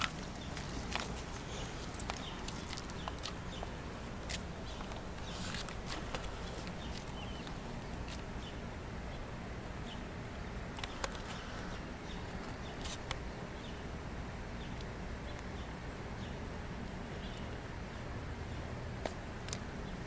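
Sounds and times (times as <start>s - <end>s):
low outdoor background noise: 0.0s - 20.0s.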